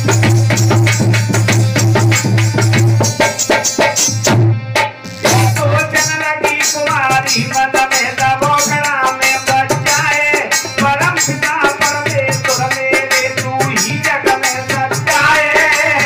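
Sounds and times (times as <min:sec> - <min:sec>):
hand drum beat: 0:00.0 - 0:16.0.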